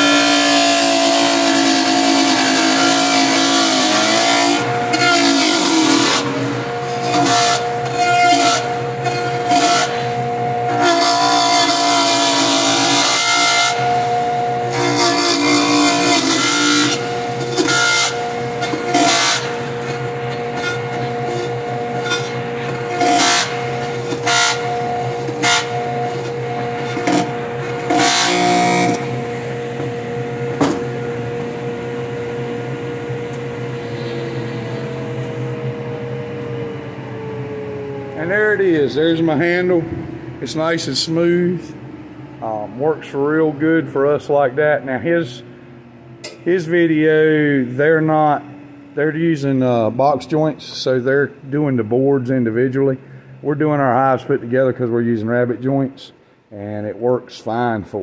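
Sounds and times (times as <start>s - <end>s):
saw blade cutting wood: 0.0s - 29.2s
table saw motor whine: 0.0s - 53.4s.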